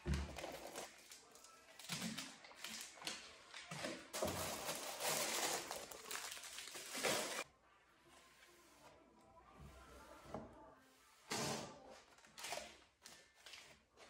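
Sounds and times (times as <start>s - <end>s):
plastic packaging crinkling: 4.1s - 7.4s.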